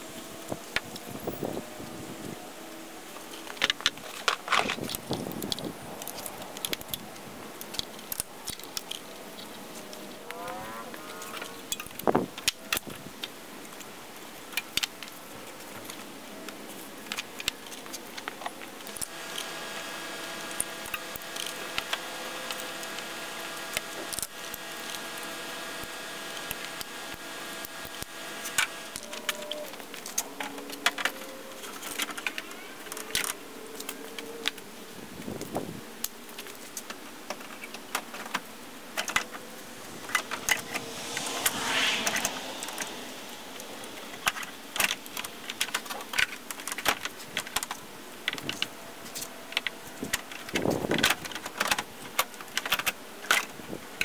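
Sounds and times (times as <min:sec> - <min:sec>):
steady drone: 0:18.7 - 0:34.8, 0:38.1 - 0:47.0.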